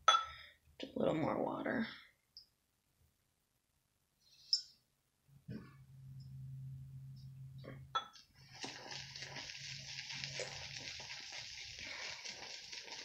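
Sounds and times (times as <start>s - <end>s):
low steady hum: 5.3s - 8.5s.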